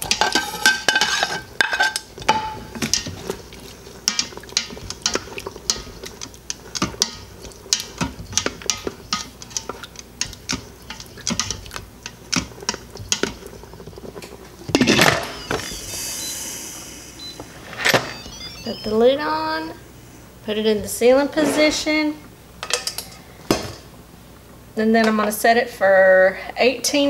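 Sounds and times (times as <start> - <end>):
utensils clinking in metal pot: 0.0 - 13.6, 22.6 - 23.8.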